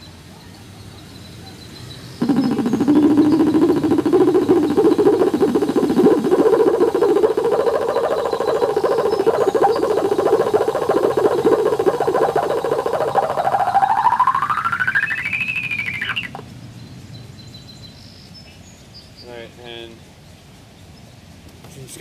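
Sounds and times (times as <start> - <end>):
rough buzzing tone rising in pitch: 2.2 - 16.5.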